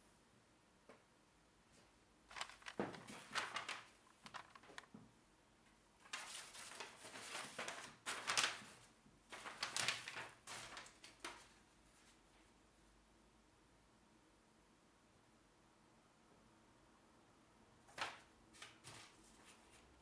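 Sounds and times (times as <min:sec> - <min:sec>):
crisp paper rustling: 0:02.3 - 0:04.9, 0:06.0 - 0:12.2, 0:17.9 - 0:20.0.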